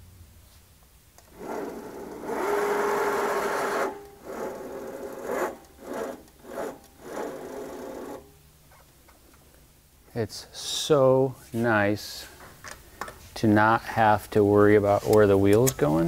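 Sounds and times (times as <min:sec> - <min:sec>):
electric motor whine: 0:01.3 - 0:08.3.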